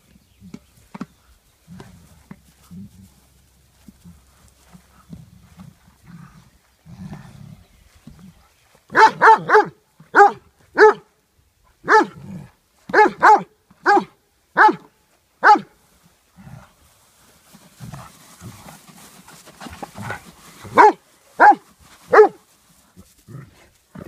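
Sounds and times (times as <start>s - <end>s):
dog barking deeply: 8.9s - 11.1s, 11.8s - 15.7s, 20.7s - 22.4s.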